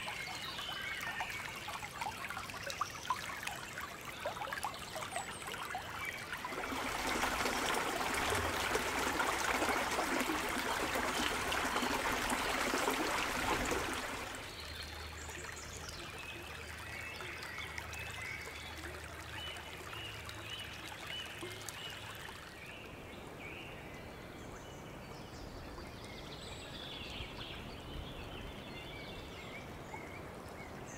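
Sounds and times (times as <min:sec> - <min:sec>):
stream trickling over gravel: 0:00.0 - 0:23.1.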